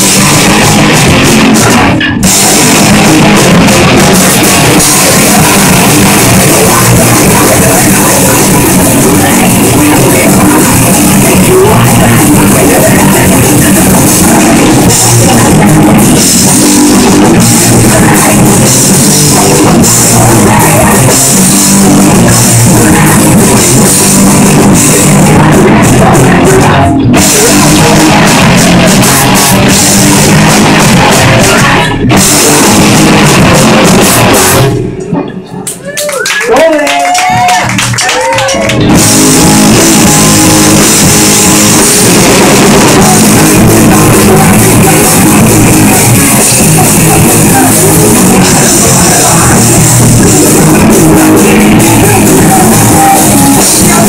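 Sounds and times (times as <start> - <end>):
pounding drum kit: 0.0 - 35.2, 36.6 - 54.0
distorted electric guitars: 0.0 - 54.0
shouted vocals: 35.8 - 41.0.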